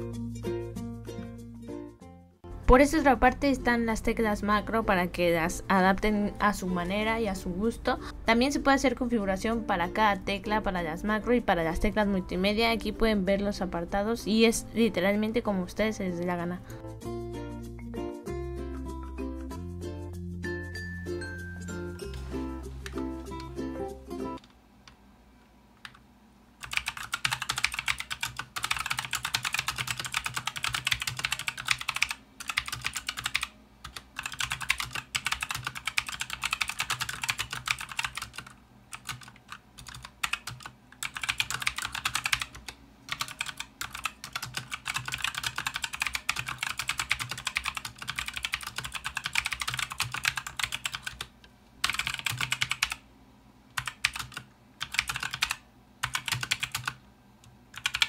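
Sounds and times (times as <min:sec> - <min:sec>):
mechanical keyboard typing: 0:26.6 - 0:53.0, 0:53.7 - 0:57.0, 0:57.7 - 0:58.0.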